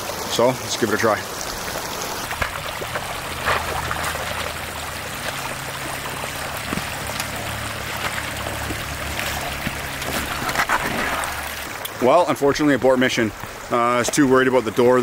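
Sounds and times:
small crunches and knocks: 2.3s - 4.5s, 6.6s - 7.4s, 8.0s - 11.6s.

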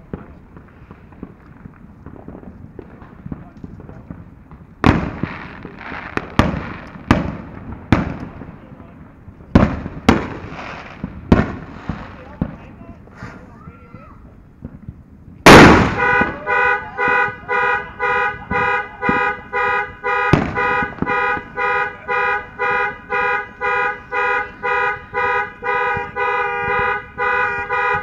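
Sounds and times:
sharp crack: 0.0s - 24.0s
firework bang: 0.0s - 28.0s
car alarm horn honking: 15.9s - 28.0s.

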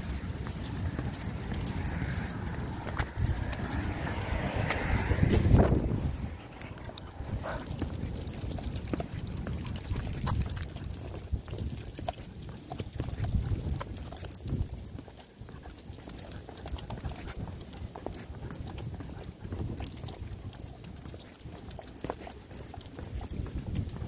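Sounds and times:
low rumble: 0.0s - 9.6s
footsteps walking: 0.0s - 13.9s.

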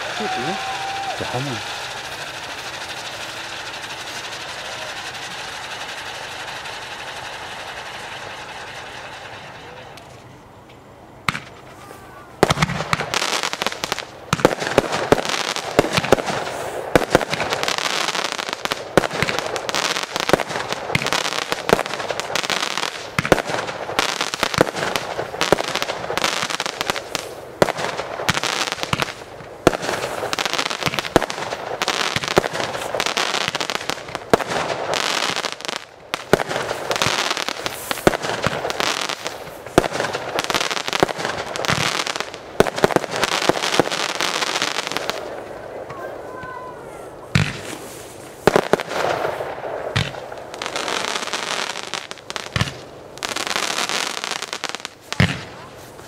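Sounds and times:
crackling hiss: 0.0s - 56.0s
fireworks bangs: 0.0s - 56.0s.

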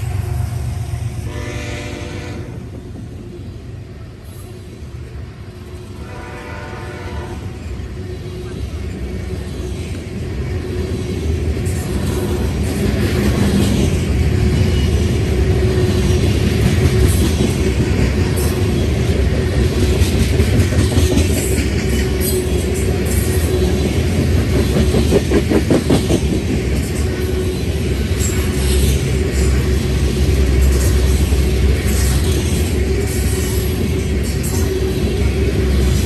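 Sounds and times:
train wheels rumbling on rail: 0.0s - 36.0s
faint train horn: 1.2s - 2.7s, 6.0s - 7.7s.

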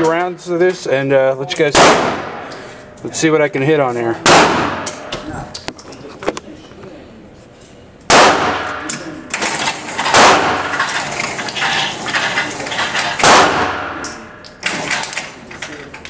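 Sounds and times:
pistol shots echoing: 1.7s - 2.6s, 4.2s - 5.2s, 8.1s - 9.2s, 10.0s - 10.8s, 13.2s - 14.2s.

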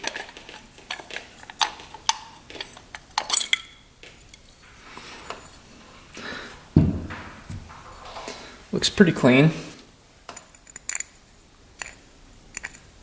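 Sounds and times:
small metal clicks and clinks: 10.3s - 11.2s, 11.8s - 12.9s.

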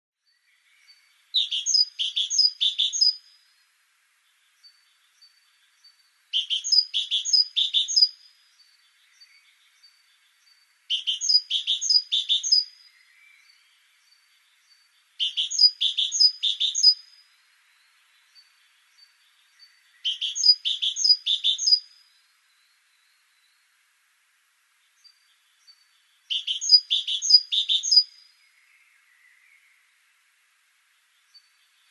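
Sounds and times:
great tit singing: 0.8s - 3.4s, 4.4s - 23.6s, 25.0s - 28.3s.

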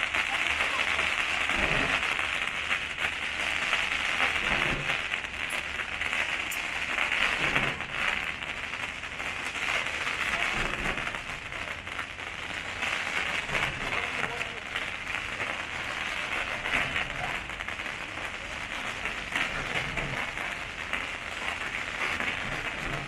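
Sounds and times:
fireworks crackling: 0.0s - 23.0s
low firework thumps: 4.4s - 8.6s, 10.3s - 12.1s, 19.3s - 20.5s.

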